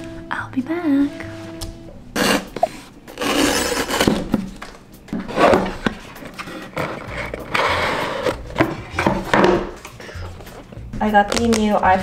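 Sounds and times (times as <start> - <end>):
cardboard scraping and rustling: 2.2 - 9.2
box knocks: 8.6 - 9.8.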